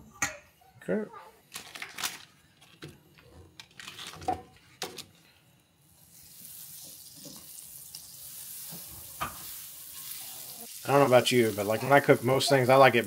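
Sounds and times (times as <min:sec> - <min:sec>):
butter sizzling in a pan: 0:05.9 - 0:13.0.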